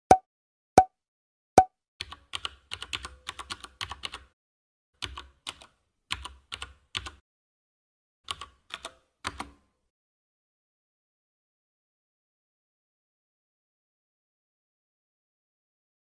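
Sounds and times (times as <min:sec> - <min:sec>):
computer keyboard typing: 0:02.0 - 0:04.4, 0:05.0 - 0:07.2, 0:08.3 - 0:09.6.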